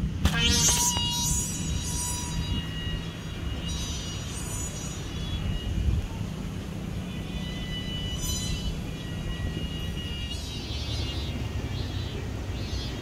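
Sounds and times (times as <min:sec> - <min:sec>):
kite hummer buzzing: 0:00.0 - 0:13.0
wind buffeting microphone: 0:05.0 - 0:13.0.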